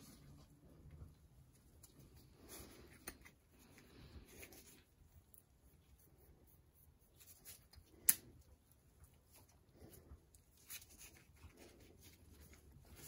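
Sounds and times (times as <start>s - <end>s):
scraping and rustling handling: 8.8s - 13.0s.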